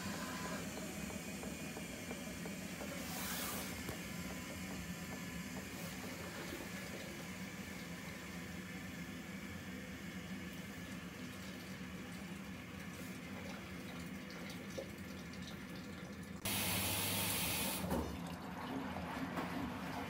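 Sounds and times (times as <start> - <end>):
washing machine humming: 0.0 - 20.0.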